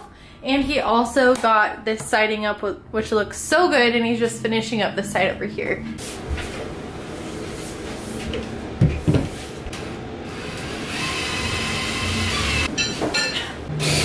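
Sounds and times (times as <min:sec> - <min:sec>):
cordless drill whirring: 0:10.4 - 0:12.7, 0:13.8 - 0:14.0.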